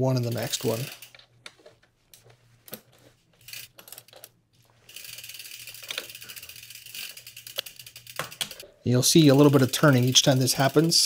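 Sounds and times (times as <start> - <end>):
torque wrench ratchet clicking: 3.5 - 4.3, 4.9 - 8.6.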